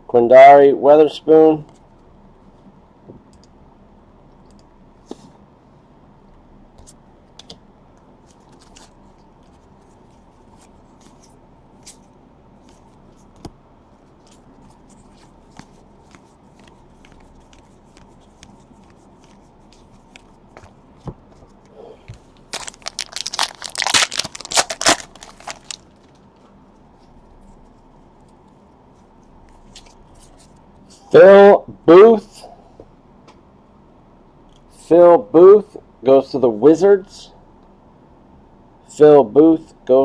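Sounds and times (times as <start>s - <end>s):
foil wrapper crinkling and tearing: 22.4s - 26.2s.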